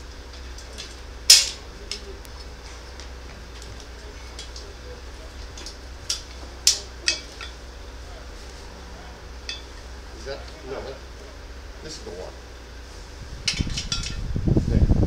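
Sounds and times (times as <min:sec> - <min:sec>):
steady low hum: 0:00.0 - 0:15.0
tools clinking on metal stand: 0:05.6 - 0:07.6, 0:09.4 - 0:09.8, 0:13.5 - 0:14.2.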